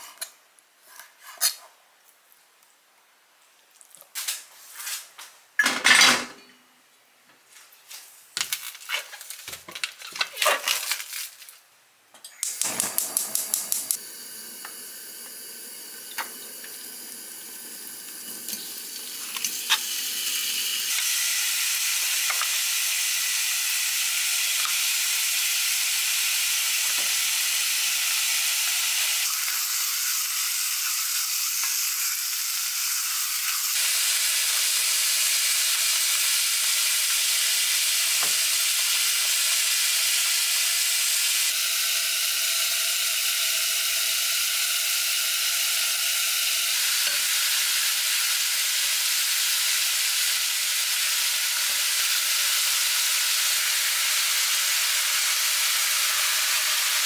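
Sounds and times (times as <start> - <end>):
dishes and utensils clattering: 5.6 - 6.6
food sizzling in a pan: 12.4 - 44.4, 45.3 - 57.0.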